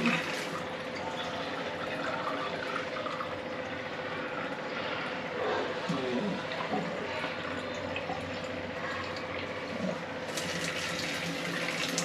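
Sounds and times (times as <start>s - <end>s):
water running into a glass: 6.5s - 12.0s.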